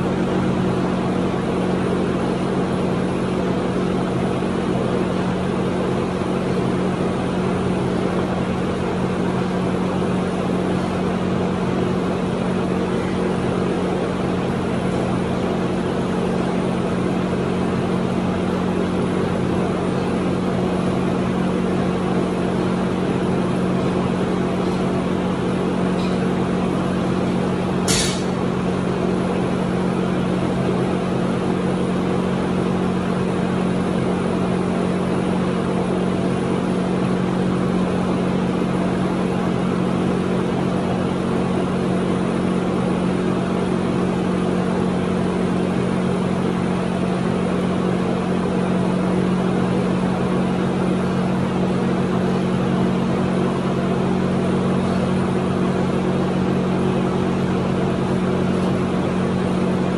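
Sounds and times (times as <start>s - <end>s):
machine hum: 0.0s - 59.9s
sharp knock: 27.9s - 28.3s.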